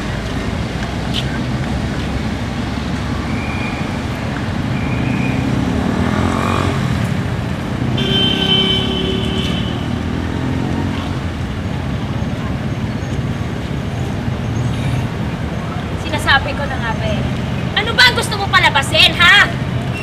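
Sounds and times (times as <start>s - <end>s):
cars passing: 0.0s - 20.0s.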